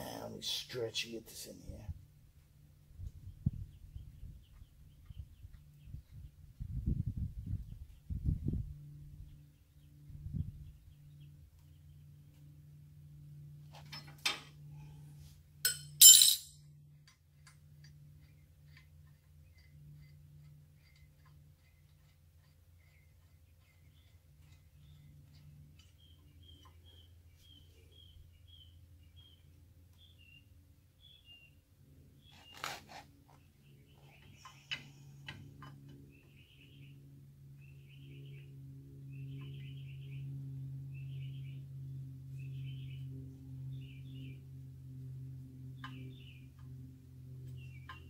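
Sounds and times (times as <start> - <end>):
steady low hum: 0.0 - 48.0
birds chirping faintly: 3.1 - 6.6, 17.8 - 41.6
metal tools clinking: 15.7 - 16.6
ringing metallic rattle: 15.7 - 16.6.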